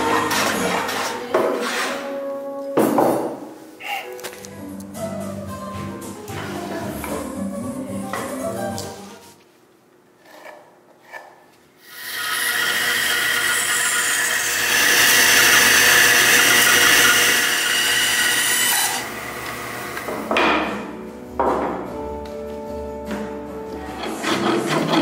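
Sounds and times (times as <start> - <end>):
bandsaw cutting wood: 11.8 - 20.2, 23.9 - 25.0.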